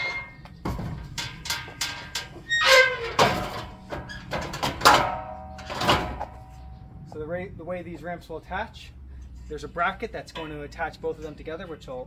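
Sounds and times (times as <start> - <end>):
metal ramp clanking: 0.0 - 6.6.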